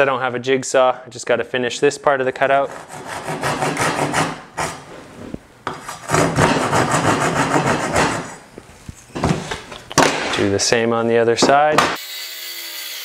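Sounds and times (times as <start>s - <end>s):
handsaw cutting wood: 2.6s - 4.9s, 5.8s - 8.4s.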